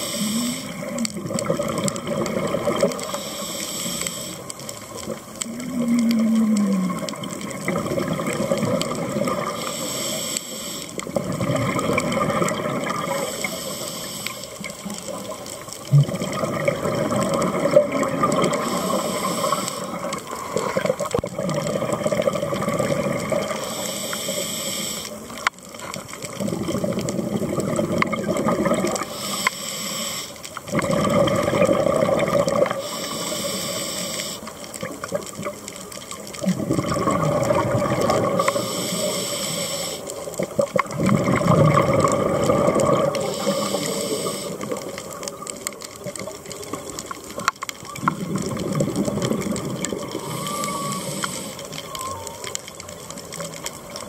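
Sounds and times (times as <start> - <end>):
diver inhaling through regulator: 0.0 - 1.0, 3.0 - 4.5, 9.4 - 11.0, 13.1 - 14.6, 18.5 - 20.6, 23.5 - 25.2, 29.0 - 30.5, 32.8 - 34.5, 38.2 - 40.2, 42.5 - 44.8, 50.2 - 52.0
exhaled air bubbling: 0.0 - 54.0.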